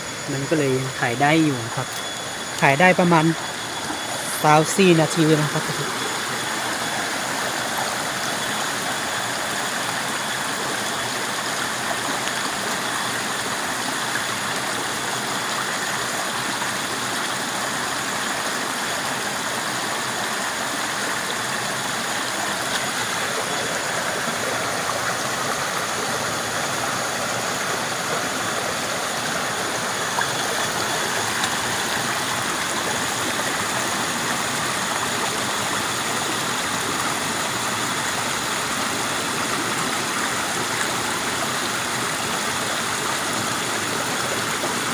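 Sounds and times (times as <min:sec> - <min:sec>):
stream rushing over rocks: 0:00.0 - 0:44.9.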